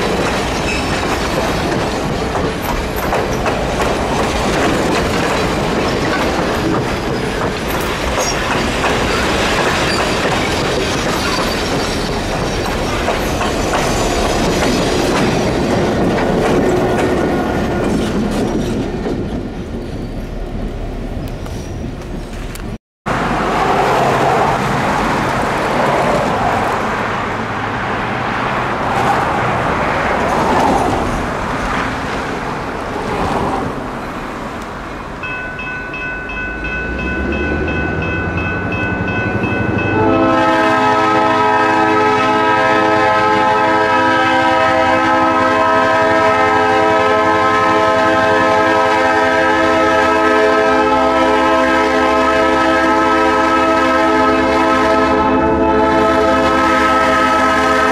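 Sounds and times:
locomotive air horn blast: 39.9s - 57.9s.

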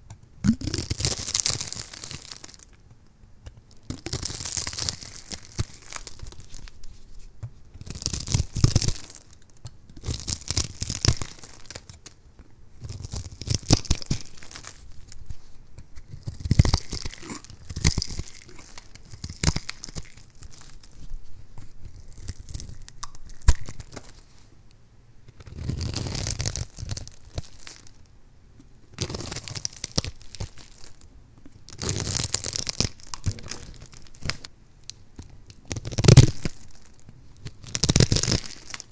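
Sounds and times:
blade crunching through soap: 16.0s - 21.0s.

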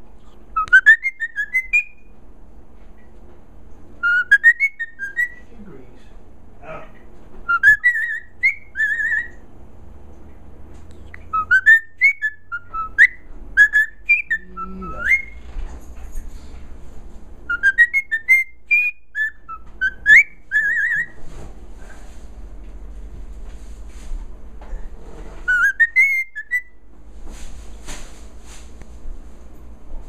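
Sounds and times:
cockatiel whistling: 0.2s - 2.1s, 4.0s - 5.5s, 7.4s - 9.4s, 10.9s - 15.4s, 17.5s - 21.2s, 25.4s - 26.8s.

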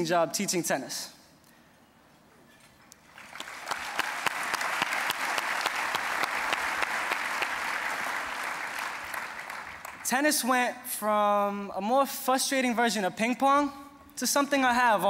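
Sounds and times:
audience applauding: 3.0s - 10.1s.

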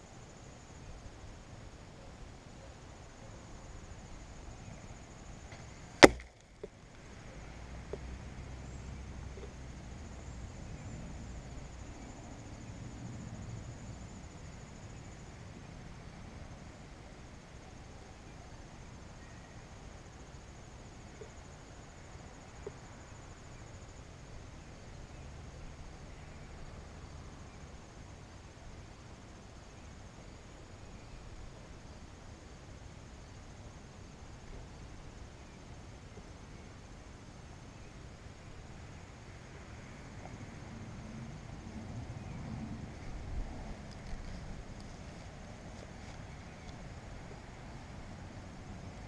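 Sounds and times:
insects trilling: 0.0s - 49.0s
arrow striking target: 6.0s - 6.4s
low steady rumble: 19.7s - 49.0s
faint ticks: 43.8s - 46.9s.

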